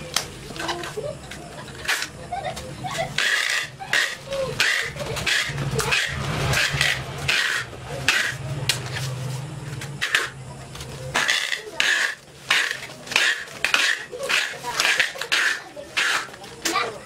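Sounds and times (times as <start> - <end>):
tape rasping pulls: 3.2 - 8.4, 11.2 - 16.4.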